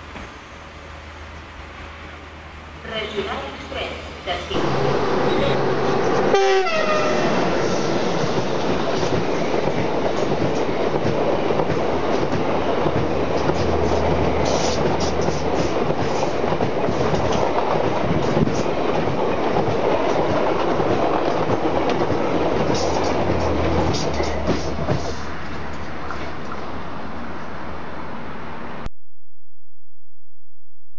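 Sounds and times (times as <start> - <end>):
passenger train rushing past: 0.0 - 28.9
wheels clacking over rail joints: 4.6 - 27.2.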